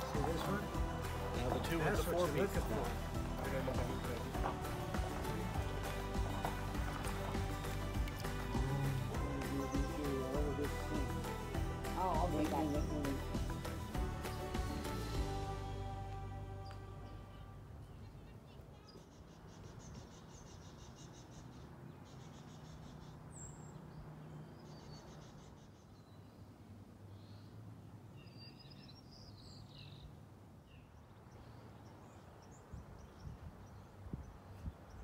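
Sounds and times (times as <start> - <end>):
bird chirps: 16.5 - 26.5, 28.2 - 35.0.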